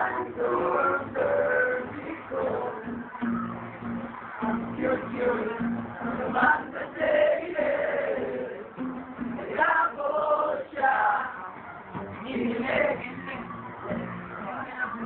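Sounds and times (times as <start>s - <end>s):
men singing together: 0.0s - 3.2s, 4.3s - 8.8s, 9.4s - 11.6s.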